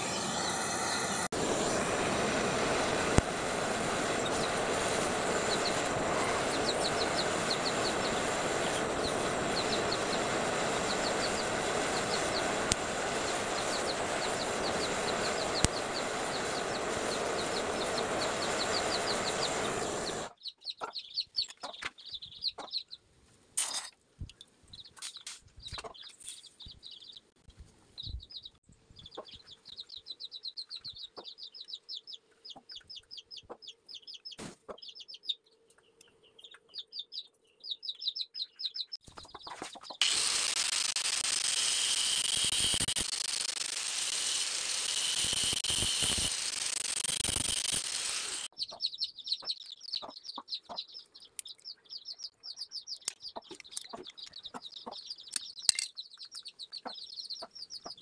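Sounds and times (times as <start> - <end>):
electric angle grinder running: 0.0 - 20.3, 40.0 - 48.5
birds chirping: 2.6 - 23.0, 25.6 - 40.0, 46.8 - 58.0
small metal pieces clicking: 40.0 - 48.5, 55.4 - 56.0.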